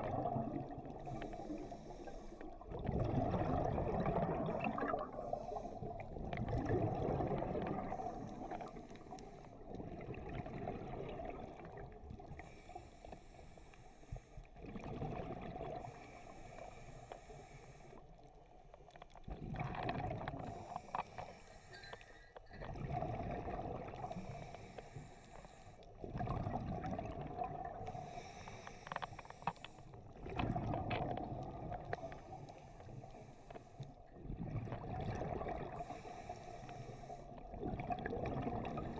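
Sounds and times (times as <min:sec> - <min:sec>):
exhaled bubbles underwater: 0:00.0 - 0:12.7, 0:14.6 - 0:17.0, 0:19.1 - 0:21.2, 0:21.9 - 0:25.2, 0:25.9 - 0:28.6, 0:29.8 - 0:38.9
regulator inhale hiss: 0:01.0 - 0:02.6, 0:05.2 - 0:05.9, 0:12.4 - 0:14.5, 0:15.8 - 0:18.2, 0:20.4 - 0:22.3, 0:24.1 - 0:25.9, 0:27.9 - 0:30.0, 0:32.0 - 0:34.0, 0:35.8 - 0:37.4.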